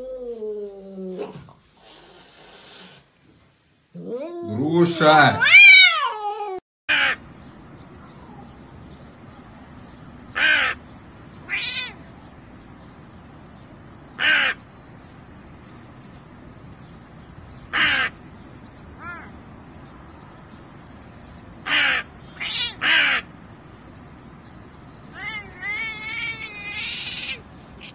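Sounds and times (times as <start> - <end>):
crow cawing: 6.9 - 7.2, 10.4 - 10.8, 14.2 - 14.6, 17.7 - 18.2, 21.7 - 23.3.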